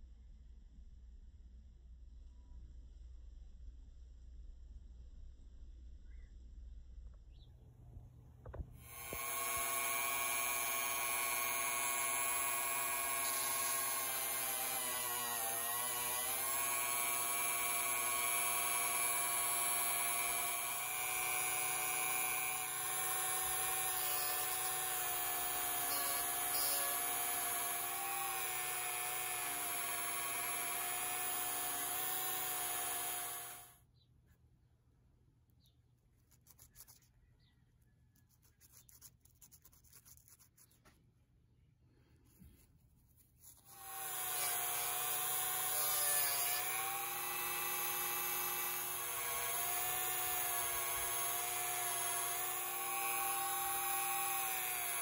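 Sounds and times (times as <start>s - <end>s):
rotary tool whining: 8.4s - 33.8s, 43.4s - 55.0s
sandpaper rubbing on screw: 36.2s - 37.2s, 38.2s - 40.9s, 42.4s - 43.8s.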